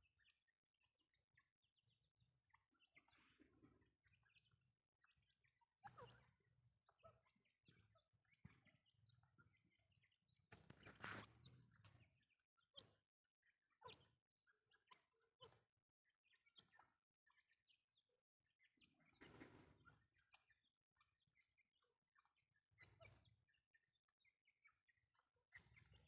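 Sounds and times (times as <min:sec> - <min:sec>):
bird chirps and clucks: 0:02.4 - 0:13.0, 0:13.6 - 0:15.7, 0:18.7 - 0:21.5, 0:22.2 - 0:23.3, 0:24.7 - 0:26.0.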